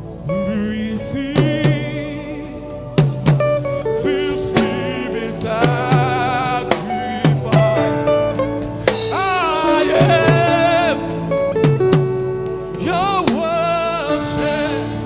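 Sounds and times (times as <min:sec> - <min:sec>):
man singing with vibrato: 0:00.0 - 0:15.0
band accompaniment: 0:00.3 - 0:15.0
drum hits: 0:03.0 - 0:12.7.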